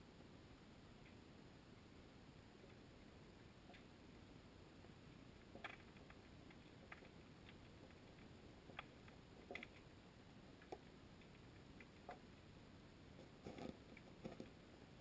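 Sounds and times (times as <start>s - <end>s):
faint steady hiss: 0.0s - 15.0s
faint irregular clicks: 1.0s - 1.2s, 2.6s - 4.0s, 5.2s - 12.4s, 13.1s - 14.7s.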